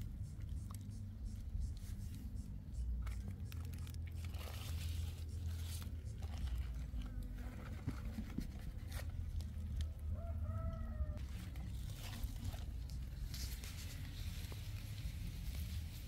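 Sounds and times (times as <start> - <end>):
cabbage leaves rustling: 11.2 - 16.0.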